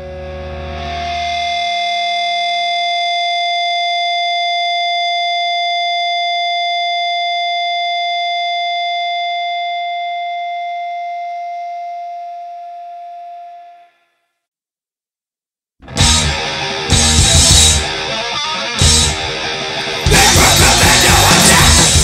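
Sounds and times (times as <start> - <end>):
electric guitar feedback whine: 0.0 - 13.9, 15.8 - 22.0
bass and drums: 15.8 - 18.2, 18.8 - 22.0.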